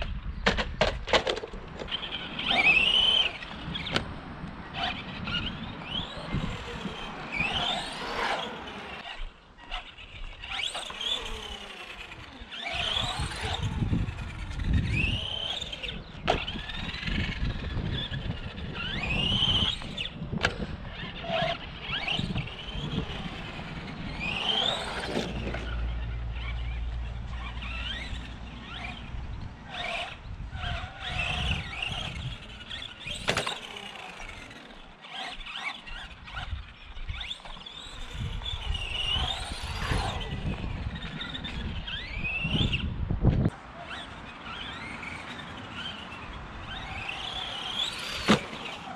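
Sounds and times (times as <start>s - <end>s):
toy truck motor whining: 1.4s - 48.9s.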